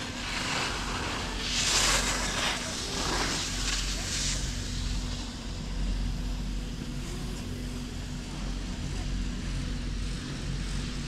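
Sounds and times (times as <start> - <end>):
skis scraping over snow: 0.0 - 5.3.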